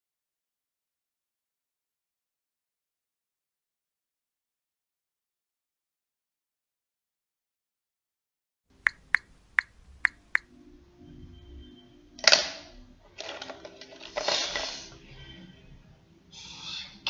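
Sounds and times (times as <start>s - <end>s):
sharp ticks: 8.8s - 10.5s
paintbrushes clattering into tin cup: 13.1s - 15.0s.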